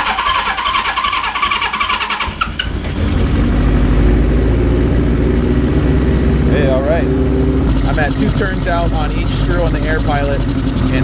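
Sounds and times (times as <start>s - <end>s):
electric starter whirring: 0.0s - 3.9s
motorcycle engine running: 0.0s - 11.0s.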